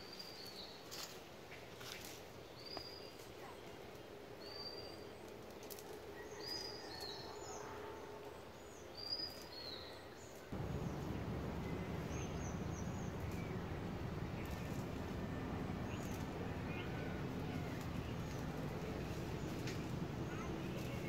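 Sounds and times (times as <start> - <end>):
open-air background noise: 0.0 - 21.0
birds chirping: 10.5 - 21.0
steady low rumbling: 10.5 - 21.0.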